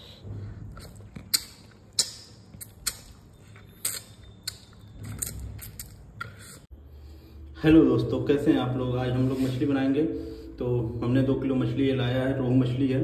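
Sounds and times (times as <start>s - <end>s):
wet eating clicks and smacks: 0.7s - 6.4s.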